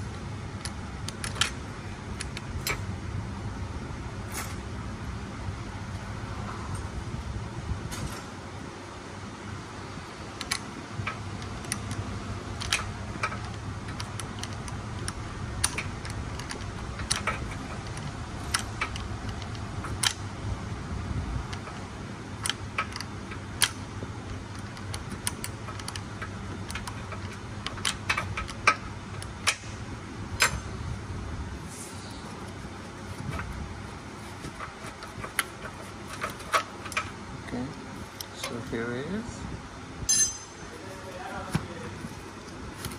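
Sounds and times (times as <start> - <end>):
low steady hum: 0.0 - 42.9
tools and fasteners clinking: 0.6 - 2.9, 10.4 - 20.3, 22.4 - 30.8, 32.3 - 37.2, 40.1 - 40.7.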